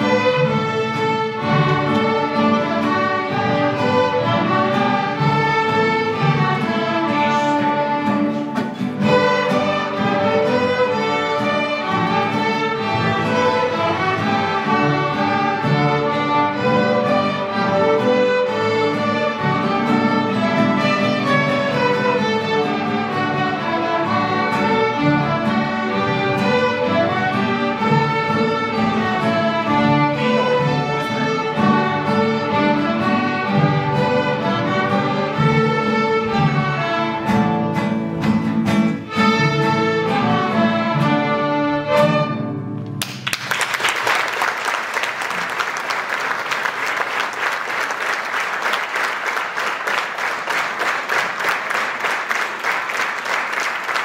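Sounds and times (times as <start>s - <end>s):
string orchestra playing: 0.0s - 43.0s
audience applause: 43.0s - 54.0s.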